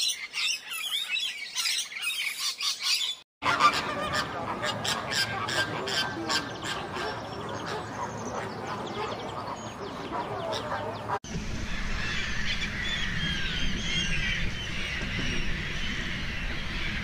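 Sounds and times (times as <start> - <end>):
many gulls calling: 0.0 - 17.0
flamingos honking and chattering: 3.4 - 17.0
low rumble: 11.2 - 17.0.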